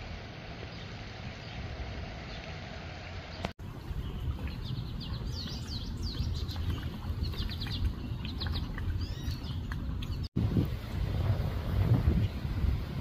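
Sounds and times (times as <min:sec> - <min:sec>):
small songbirds chirping: 0:00.6 - 0:10.4.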